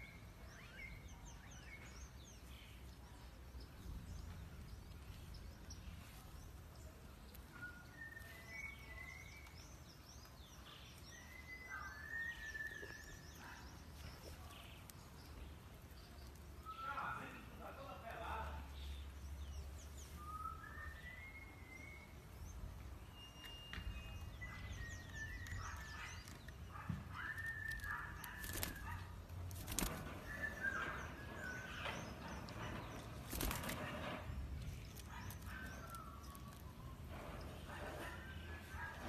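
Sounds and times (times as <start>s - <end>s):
sharp rustles: 27.2s - 30.8s, 32.3s - 36.7s.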